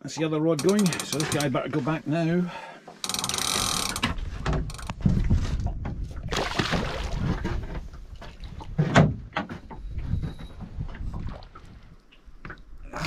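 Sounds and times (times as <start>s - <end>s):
knocks and bumps in a boat: 0.1s - 1.6s, 2.9s - 12.7s.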